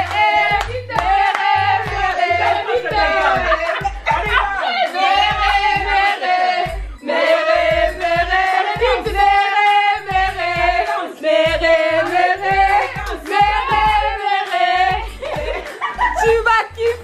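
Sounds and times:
sung vocals holding long notes: 0:00.0 - 0:15.6
pulsing bass beat: 0:00.0 - 0:17.0.

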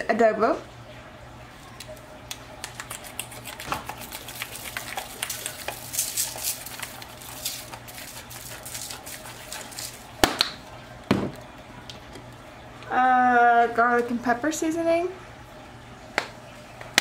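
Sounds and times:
seasoning shaker patter: 0:02.6 - 0:10.2.

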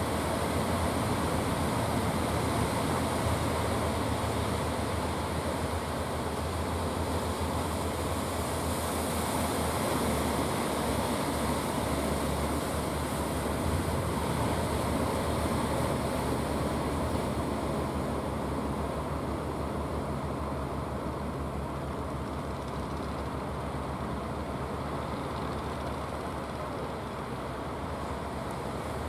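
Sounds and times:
surf washing: 0:00.0 - 0:22.4
boat engine humming: 0:00.0 - 0:29.0.

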